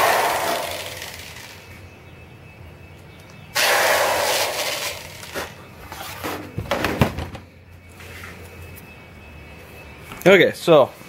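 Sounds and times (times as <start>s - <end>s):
tool knocks and clunks: 6.3s - 7.5s.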